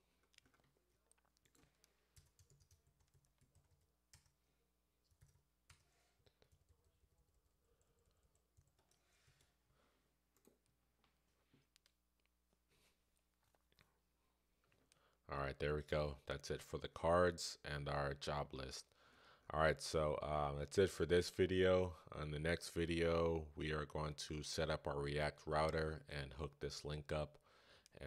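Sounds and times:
keyboard typing: 0.2 - 4.4, 5.0 - 9.5.

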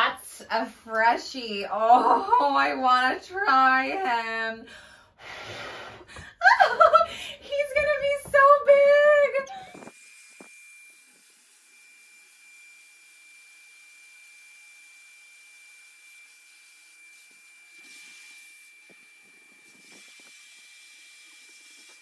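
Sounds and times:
electric balloon pump whining: 9.4 - 22.0.

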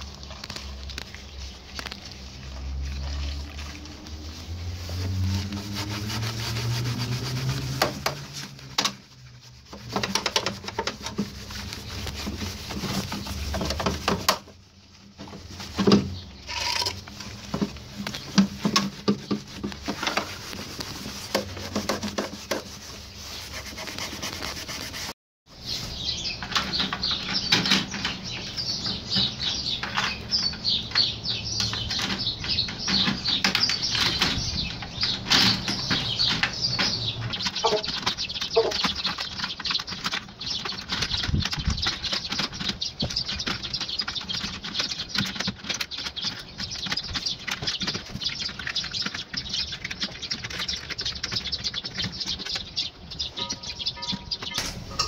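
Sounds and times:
wet sponge scrubbing metal: 0.0 - 26.0.

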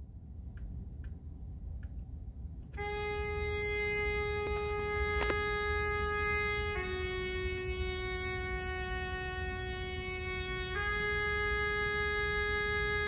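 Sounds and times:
trumpet holding a note: 2.8 - 13.0.

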